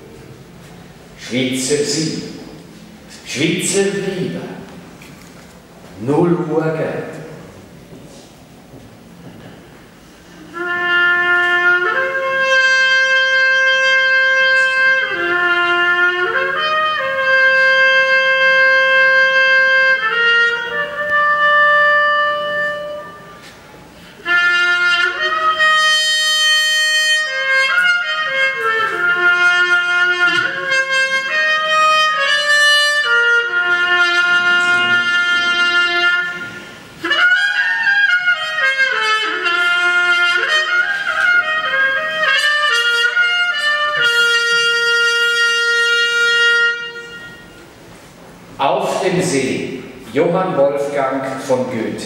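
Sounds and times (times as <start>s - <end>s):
solo trumpet melody: 10.4s - 23.6s, 24.2s - 48.5s.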